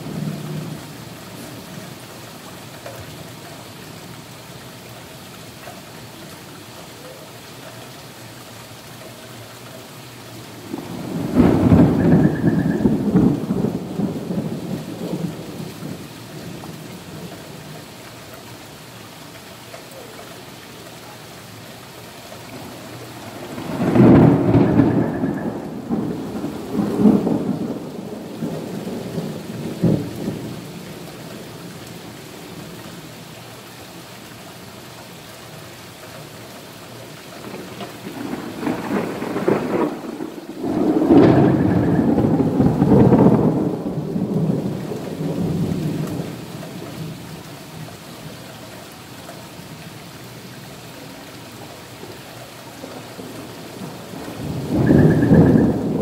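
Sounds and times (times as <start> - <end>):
rain on wet pavement: 0.0 - 56.0
rolling thunder: 10.6 - 17.6, 22.6 - 31.6, 37.4 - 46.8, 53.2 - 56.0.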